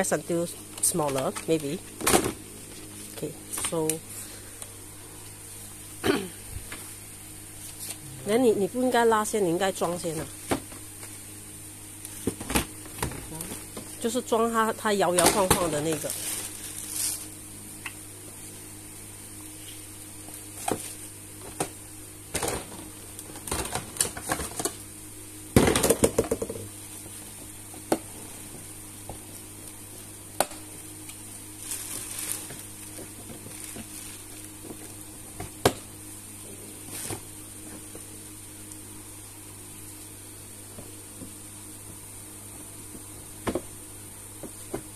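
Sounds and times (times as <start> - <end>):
plastic parts knocking and clicking: 25.6 - 26.6.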